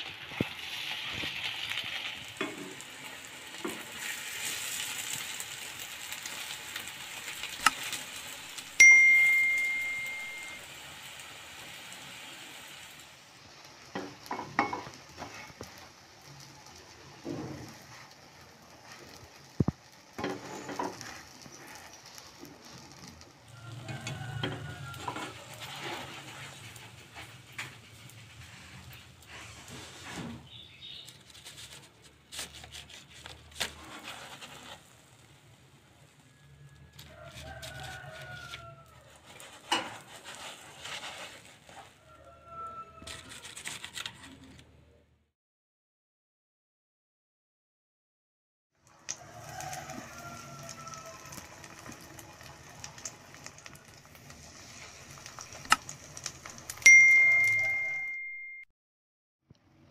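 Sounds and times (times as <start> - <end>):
oil sizzling in pan: 0.0 - 43.1, 48.8 - 57.9
bright bell ding: 8.8 - 10.6, 56.9 - 58.7
plastic spatula scraping pan: 18.8 - 35.2, 37.2 - 42.0.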